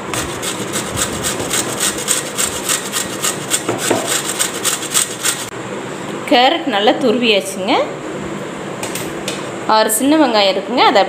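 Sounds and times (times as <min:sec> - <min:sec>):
carrot grating on metal grater: 0:00.0 - 0:05.5.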